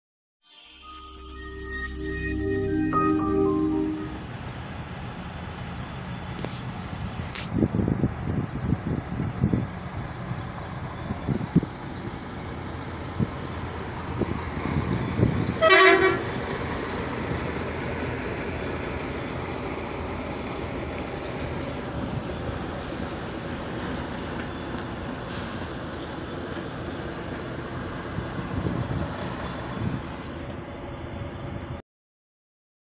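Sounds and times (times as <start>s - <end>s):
road traffic noise: 0.7s - 31.8s
vehicle horn toot: 15.6s - 16.3s.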